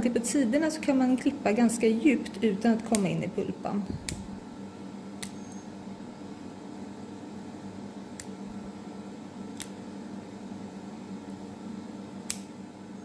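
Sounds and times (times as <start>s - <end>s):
steady low hum: 0.0s - 13.0s
nail clipper snipping: 9.6s - 9.8s, 12.3s - 12.5s.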